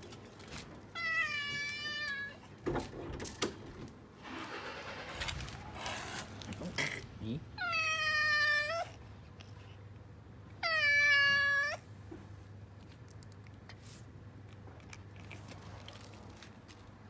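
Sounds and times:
cat meowing: 1.0 - 2.4, 7.6 - 9.0, 10.6 - 11.8
cat eating with faint clicks: 8.8 - 10.6, 12.6 - 17.0.

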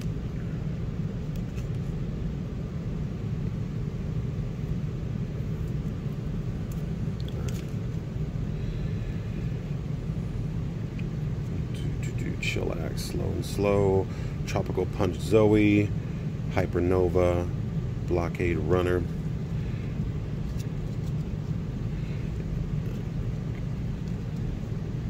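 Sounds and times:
low background rumble: 0.0 - 25.0
cards being handled: 1.2 - 2.0, 6.6 - 7.9, 20.4 - 21.5.

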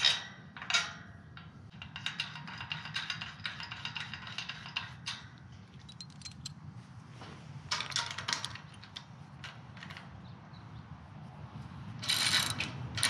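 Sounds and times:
metal gate latch clinking: 0.0 - 6.5, 12.0 - 13.0.

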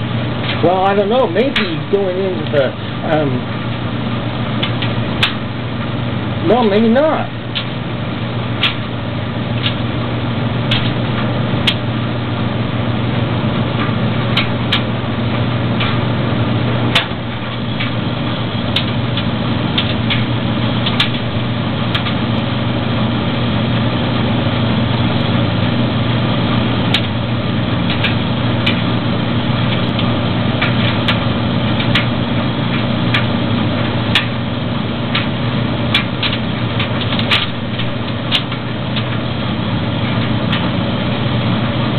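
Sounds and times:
dryer motor humming: 0.0 - 41.9
gas burner firing: 0.0 - 41.9
irregular clicks and ticks: 8.6 - 8.9, 9.6 - 9.8, 10.7 - 11.8, 13.8 - 14.9, 18.6 - 21.3, 21.9 - 22.2, 26.9 - 27.2, 27.9 - 28.9, 31.8 - 33.3, 34.1 - 34.4, 35.1 - 39.2.

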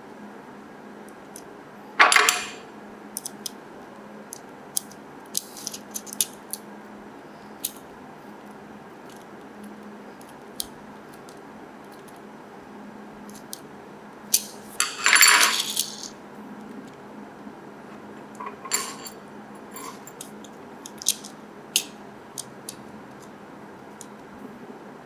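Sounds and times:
metal screws and plastic parts clinking: 18.4 - 20.3.

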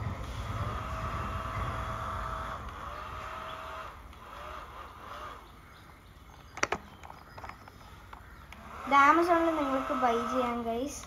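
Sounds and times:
bubble gun motor whirring: 0.0 - 11.0
sharp clicks: 2.5 - 10.3.

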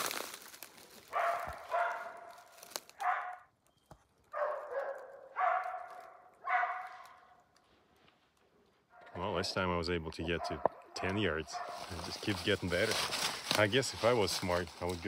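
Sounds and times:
dogs barking: 1.1 - 3.6, 4.3 - 7.4, 10.2 - 12.0.

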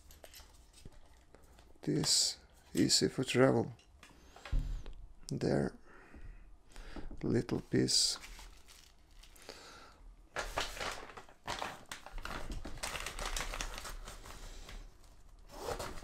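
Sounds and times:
plastic bag crinkling: 8.1 - 9.6, 10.3 - 16.0.

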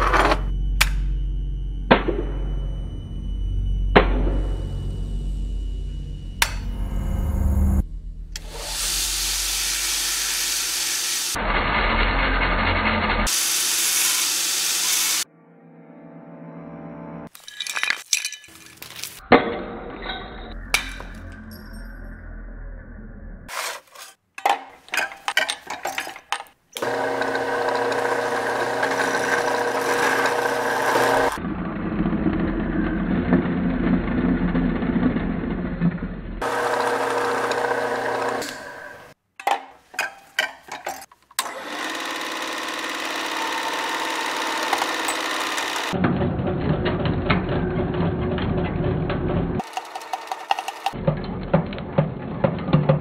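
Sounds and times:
music: 0.0 - 8.5, 15.2 - 17.3
chop saw cutting metal: 8.4 - 15.2, 26.8 - 31.4, 36.4 - 39.2, 41.4 - 46.0
drill boring into metal: 8.4 - 15.2, 26.8 - 31.4, 36.4 - 39.1, 41.4 - 46.0.

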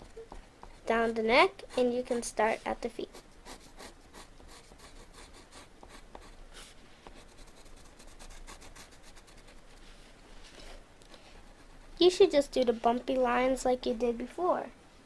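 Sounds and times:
pencil scratching on paper: 0.0 - 9.8, 11.3 - 12.0.

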